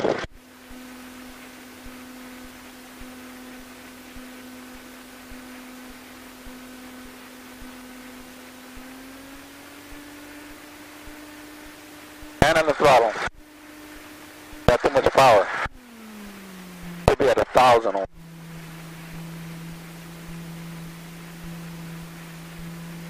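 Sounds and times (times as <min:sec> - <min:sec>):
aircraft engine hum over intercom: 0:00.0 - 0:23.0.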